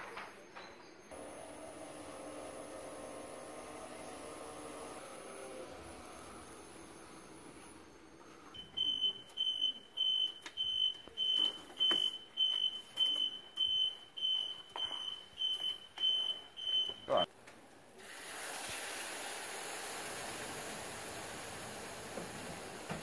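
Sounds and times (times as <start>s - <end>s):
electronic timer beeping: 6.8s - 17.3s.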